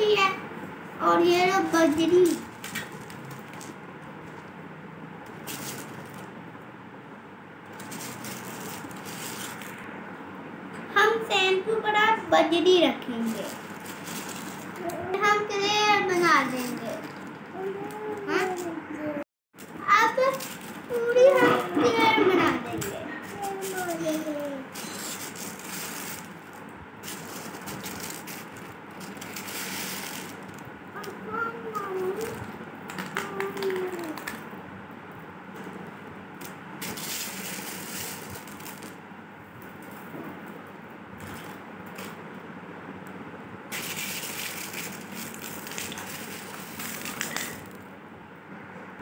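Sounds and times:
gravel pebbles crunching and rattling: 43.7 - 47.8.

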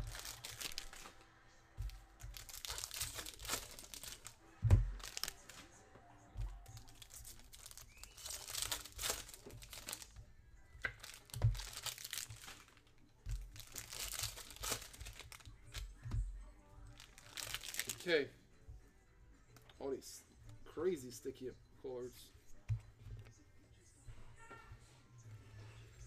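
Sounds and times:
foil wrappers crinkling and tearing: 0.0 - 1.2, 1.8 - 5.7, 6.5 - 10.2, 10.8 - 15.9, 16.9 - 18.2.

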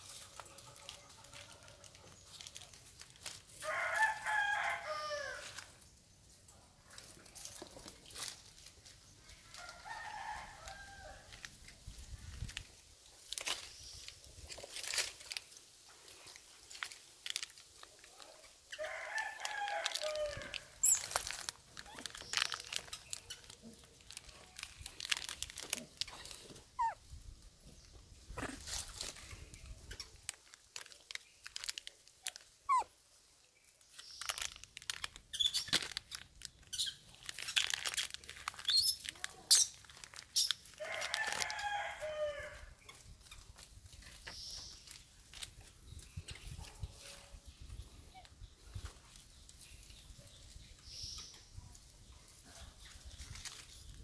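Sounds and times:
plastic wrapper crinkling: 0.0 - 4.2, 6.9 - 27.0, 28.4 - 32.9, 33.8 - 42.0, 42.9 - 45.7, 53.0 - 54.0
rooster crowing: 3.6 - 5.5, 18.8 - 20.6, 40.8 - 42.7.

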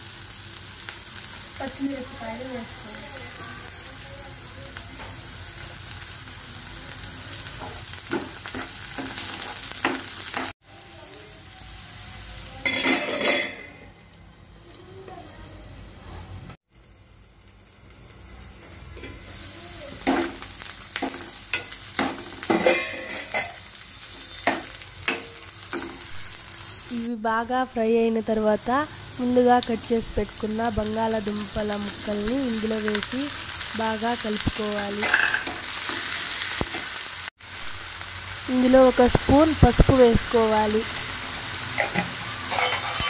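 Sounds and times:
onions sizzling in hot oil: 0.0 - 43.0
steel spoon scraping pan: 35.0 - 36.2, 41.8 - 43.0.

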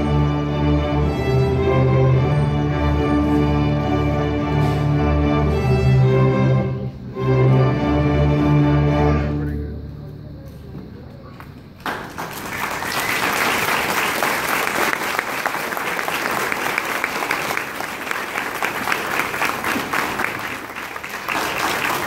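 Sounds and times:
audience applauding: 11.8 - 22.0.

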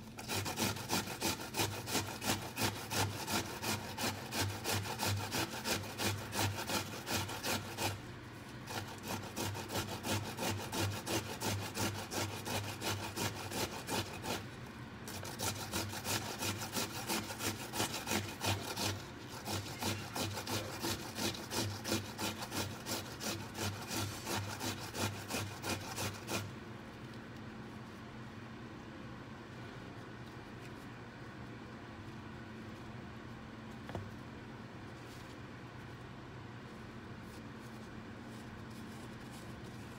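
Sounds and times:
vegetables grated on metal grater: 0.0 - 8.0, 8.6 - 14.5, 15.1 - 26.5.

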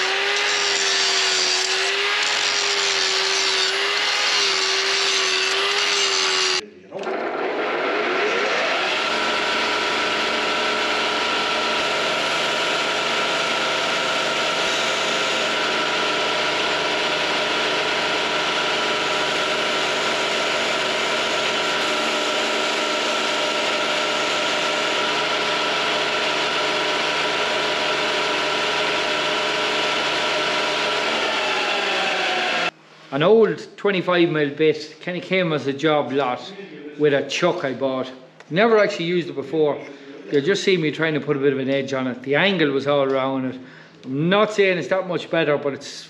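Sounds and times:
grinder motor whining: 0.0 - 32.8.

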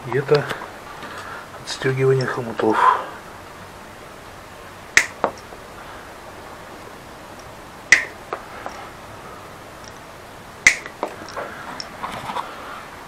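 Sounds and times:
bicycle clamps snapping open: 10.7 - 11.4.

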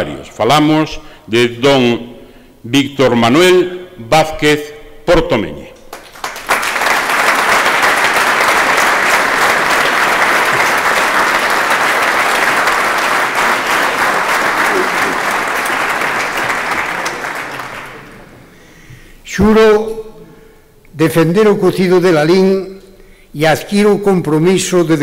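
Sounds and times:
audience applauding: 5.9 - 18.7.

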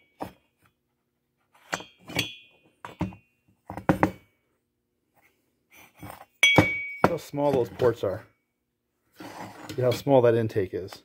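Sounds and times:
metal parts knocking on wooden bench: 2.8 - 4.2.

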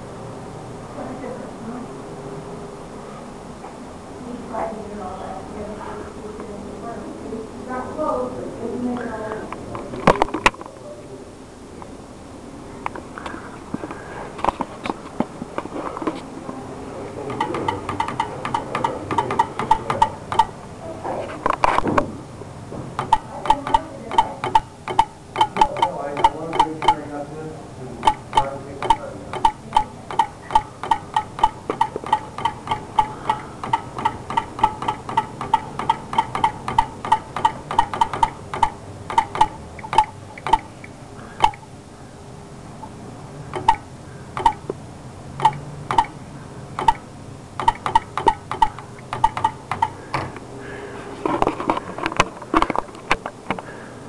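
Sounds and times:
sharp mechanical clicks ringing: 17.3 - 20.6, 23.0 - 27.1, 28.0 - 41.7, 43.5 - 44.7, 45.4 - 46.2, 46.8 - 50.0.

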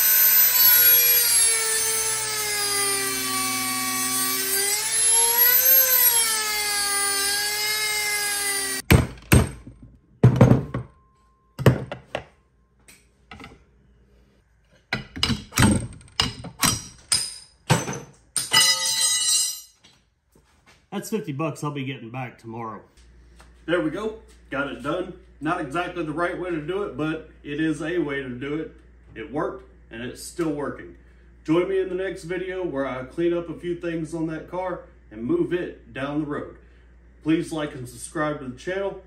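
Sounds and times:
rotary tool grinding metal: 0.0 - 8.9.

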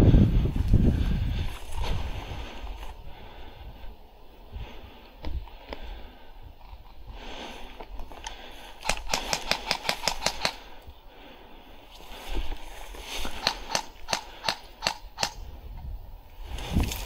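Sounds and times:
airsoft gun shots: 8.8 - 10.7, 13.4 - 15.4.

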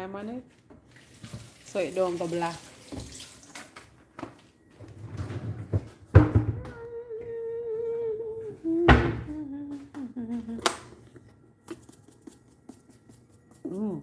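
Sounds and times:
person humming: 6.5 - 10.8.

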